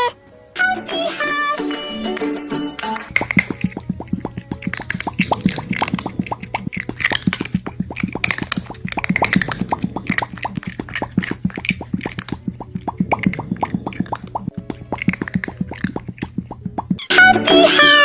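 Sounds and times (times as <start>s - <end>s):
cartoon mouth-pop sound effects: 3.0s - 17.1s.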